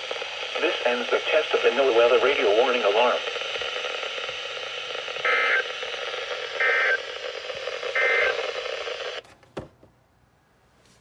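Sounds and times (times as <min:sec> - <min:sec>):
radio static hiss: 0:00.0 - 0:09.2
digital data tone bursts: 0:00.8 - 0:09.2.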